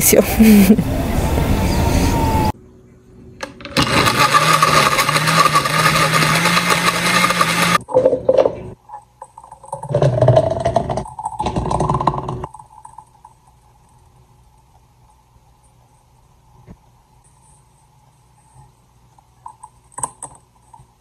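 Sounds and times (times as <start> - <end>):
blender motor running: 0.6 - 2.5, 3.8 - 7.8.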